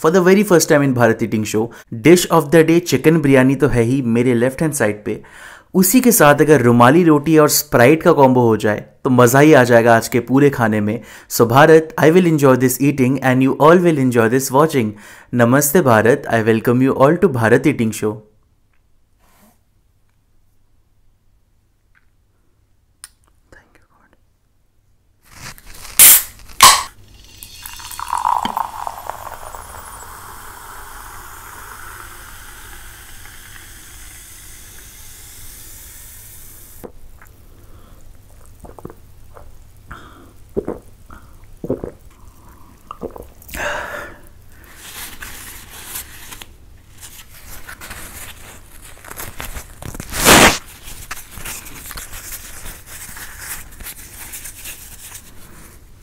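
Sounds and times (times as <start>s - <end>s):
bread rustling and tearing: 25.2s - 26.7s, 44.9s - 55.3s
person drinking and swallowing: 26.0s - 35.4s, 38.1s - 43.7s
drink pouring into glass: 26.0s - 36.5s.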